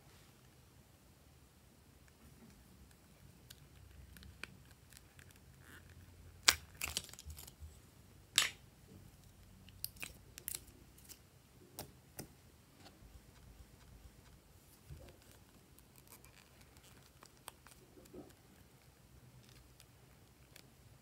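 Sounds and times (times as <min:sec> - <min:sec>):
sticky slime crackles and pops: 0:06.4 - 0:07.5.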